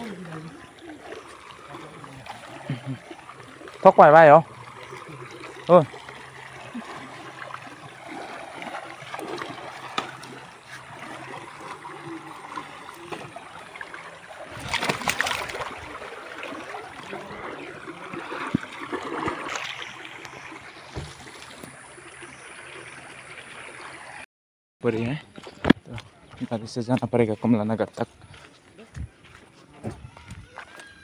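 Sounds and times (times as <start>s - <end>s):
splashing from wading: 0.0s - 24.2s
stream running: 0.0s - 31.0s.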